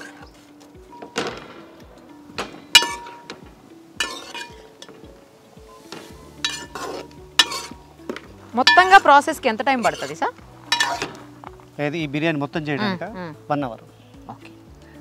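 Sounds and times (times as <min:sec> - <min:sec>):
background music with beat: 0:00.0 - 0:08.8, 0:10.3 - 0:15.0
metal spoon clinking on pot: 0:02.8 - 0:03.4, 0:04.0 - 0:05.0, 0:06.4 - 0:07.8, 0:08.6 - 0:09.2, 0:09.8 - 0:10.2, 0:10.8 - 0:11.2.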